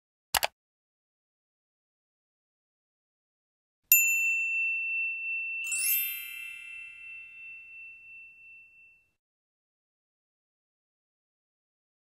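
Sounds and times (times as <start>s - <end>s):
bright bell-like chime: 3.9s - 9.2s
high ringing tone: 3.9s - 9.2s.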